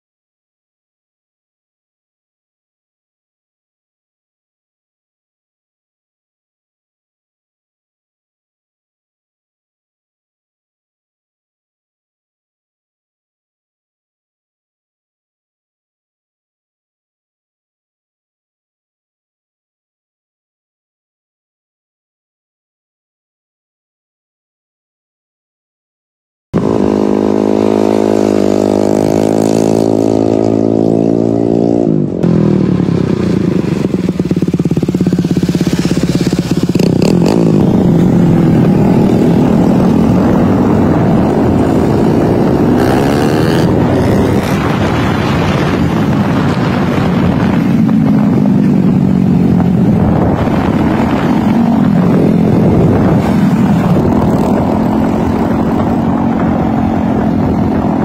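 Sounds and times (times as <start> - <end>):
motorcycle engine revving: 26.6 - 58.0.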